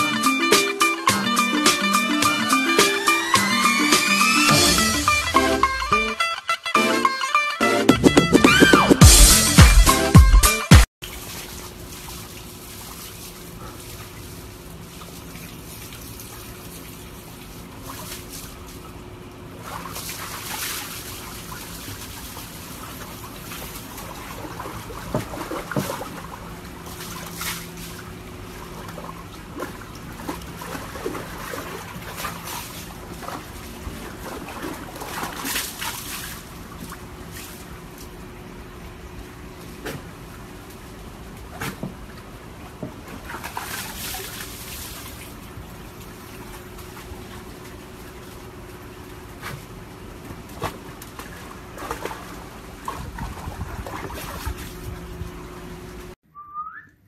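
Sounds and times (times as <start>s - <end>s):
water sloshing and splashing in tub: 11.0s - 56.2s.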